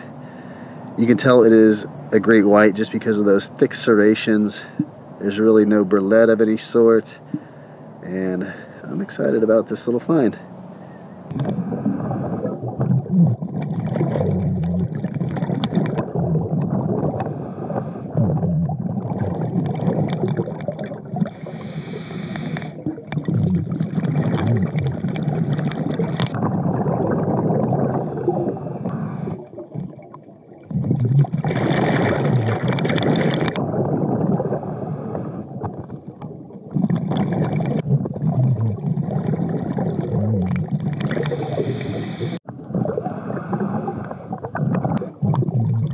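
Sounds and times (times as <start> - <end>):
regulator hissing inhalation: 7.2 - 9.2, 21.3 - 22.8, 41.1 - 42.4
regulator bubbling exhalation: 11.0 - 35.5, 36.6 - 45.9.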